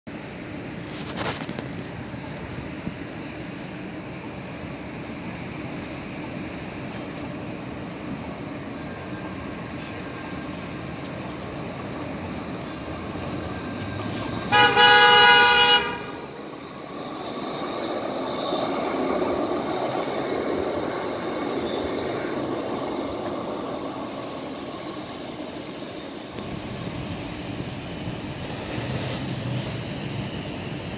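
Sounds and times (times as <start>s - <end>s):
train wheels rumbling on track: 0.1s - 30.9s
train horn blast: 14.4s - 16.3s.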